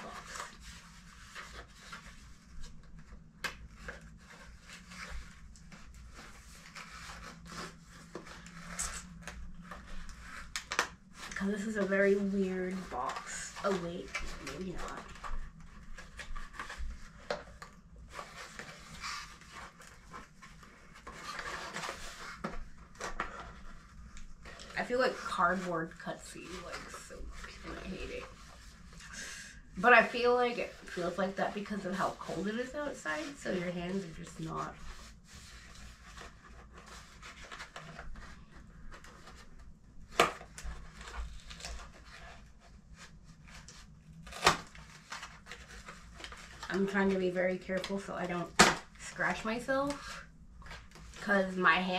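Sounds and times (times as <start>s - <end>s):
cardboard flaps scraping: 0.0s - 29.2s.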